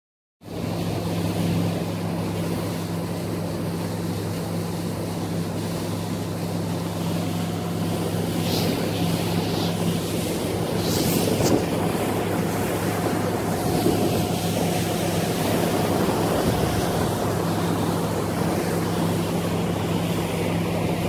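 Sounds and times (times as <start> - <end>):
motorboat engine humming: 0.4 - 21.0
water rushing: 0.4 - 21.0
wind: 0.4 - 21.0.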